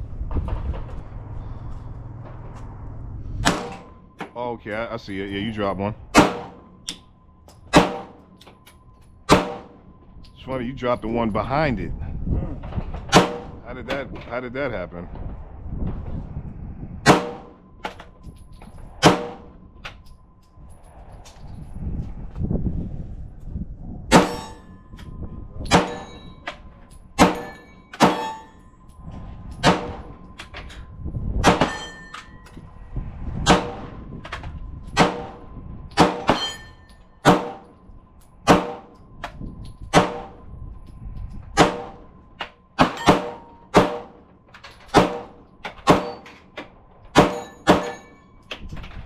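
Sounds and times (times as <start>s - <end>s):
pistol gunshots: 6.1s - 6.6s, 7.7s - 8.2s, 38.5s - 38.8s, 42.8s - 44.2s, 44.9s - 46.2s
steel targets ringing: 24.1s - 29.0s, 31.4s - 32.5s, 36.0s - 39.0s, 42.8s - 44.2s, 44.9s - 46.4s, 47.1s - 48.5s.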